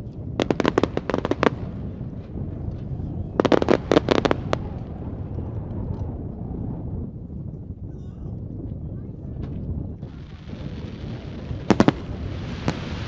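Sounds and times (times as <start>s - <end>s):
fireworks cracking: 0.0s - 6.1s, 9.4s - 13.0s.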